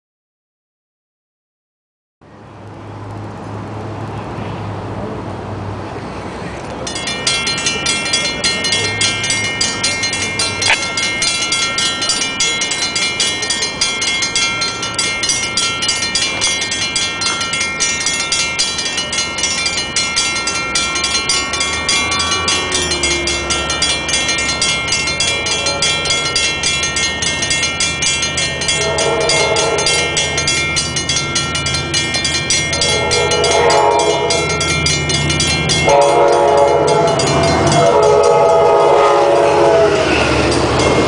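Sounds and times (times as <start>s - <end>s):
crossing warning bells ringing: 6.7s - 41.0s
distant train horn: 20.8s - 26.6s, 28.6s - 30.6s, 32.8s - 34.8s, 35.8s - 40.6s.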